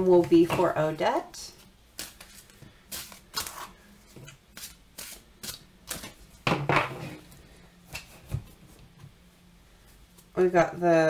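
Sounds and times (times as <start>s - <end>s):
cards being shuffled: 2.0s - 6.2s.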